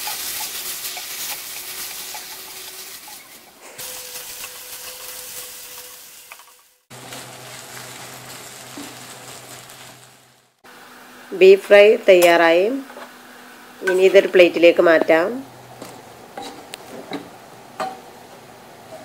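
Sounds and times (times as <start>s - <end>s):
beef sizzling in oil: 0.0s - 10.6s.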